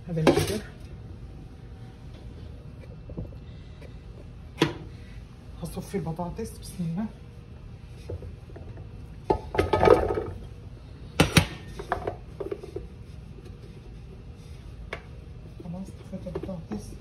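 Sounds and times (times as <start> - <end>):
kitchenware clattering: 0.2 - 0.8.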